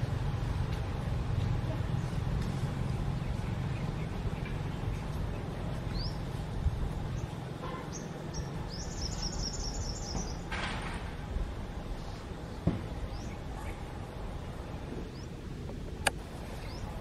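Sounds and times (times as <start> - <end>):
bird chirping: 2.8 - 6.4, 7.1 - 10.5, 12.0 - 15.4, 16.4 - 17.0.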